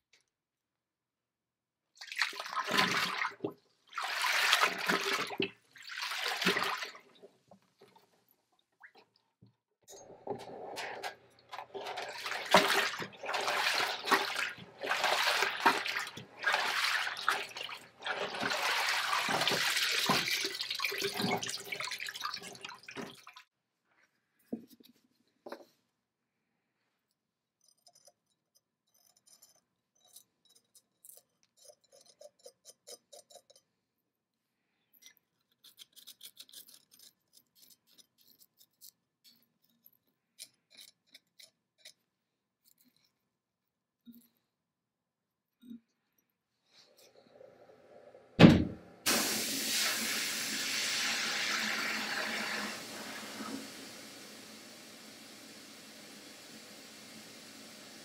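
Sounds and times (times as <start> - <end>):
liquid splashing and sloshing: 2.0 - 9.2, 10.2 - 23.5.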